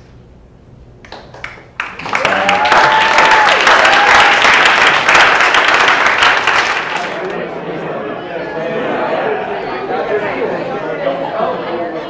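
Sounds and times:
audience applauding: 1.1 - 7.4.

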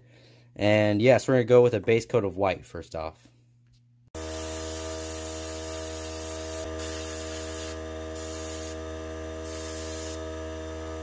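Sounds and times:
steady motor hum: 4.2 - 11.0
airbrush hissing: 4.3 - 8.8, 9.4 - 10.2.

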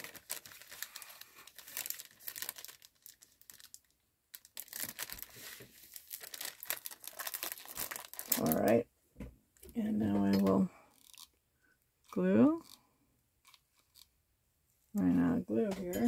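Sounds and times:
cellophane bag crinkling: 0.0 - 8.8, 10.4 - 11.3.

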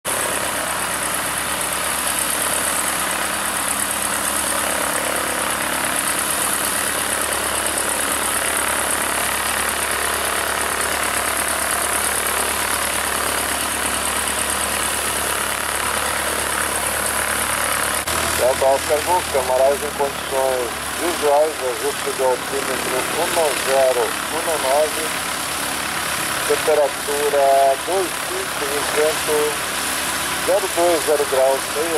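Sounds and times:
airplane engine and propeller idling: 0.1 - 31.9.

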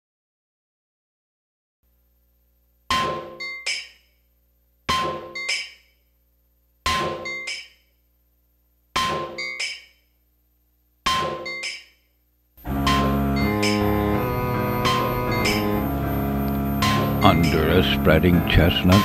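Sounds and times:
hammer ringing on anvil: 2.9 - 3.9, 4.9 - 5.8, 6.9 - 7.7, 9.0 - 9.9, 11.1 - 11.9, 12.8 - 13.8.

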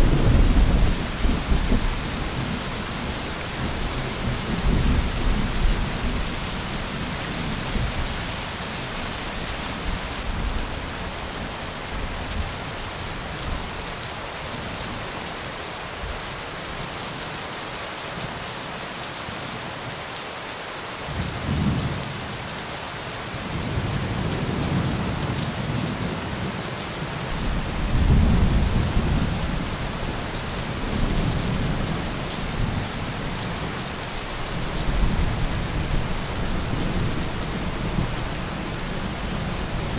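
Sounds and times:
thunder rumbling: 0.0 - 8.0, 27.3 - 33.8
steady rain: 0.0 - 39.9.

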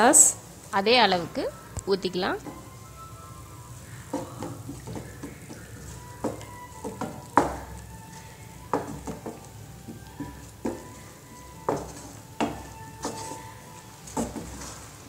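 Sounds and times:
faint sizzle of frying: 0.0 - 15.0
spoon stirring in a frying pan: 2.4 - 15.0
spoon knocking against the pan: 4.1 - 7.8, 8.7 - 11.0, 11.6 - 13.5.

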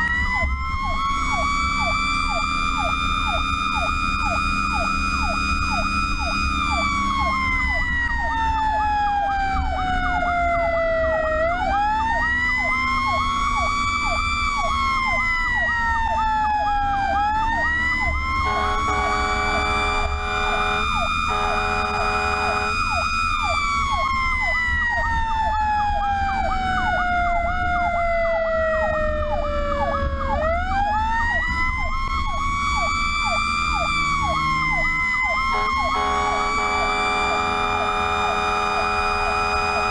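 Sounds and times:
electronic siren yelp: 0.0 - 39.9
road noise: 0.0 - 39.9
truck engine rumble: 0.0 - 39.9
wailing fire truck siren: 0.0 - 39.9
horn blasts: 18.4 - 23.0, 35.4 - 39.9.

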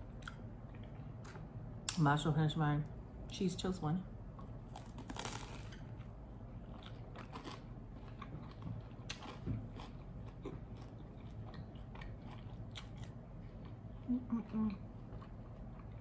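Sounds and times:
person chewing crunchy toast: 4.4 - 14.2, 14.8 - 16.0.

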